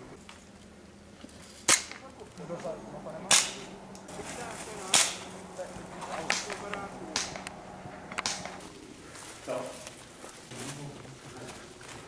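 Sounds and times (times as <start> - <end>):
airsoft gun shots: 3.3 - 3.8, 4.9 - 5.4, 6.1 - 8.7.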